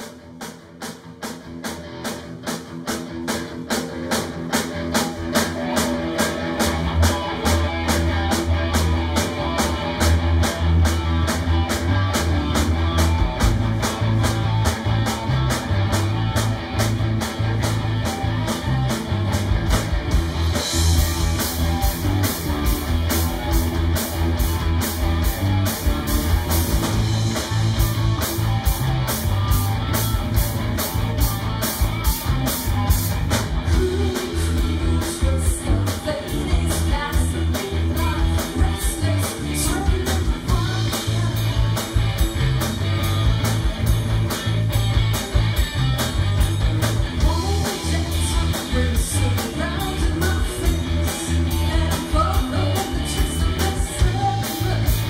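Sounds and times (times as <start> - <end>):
drum beat: 0.0 - 39.1
bass guitar: 0.0 - 55.0
electric guitars: 0.0 - 55.0.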